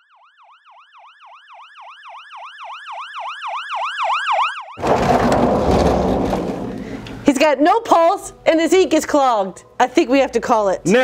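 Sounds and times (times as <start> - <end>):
ambulance siren yelping: 0.0 - 4.8.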